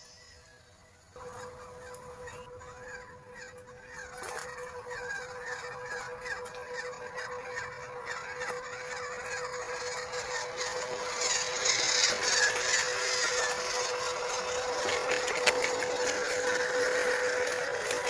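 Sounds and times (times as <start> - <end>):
rc car motors whirring: 0.0 - 18.0.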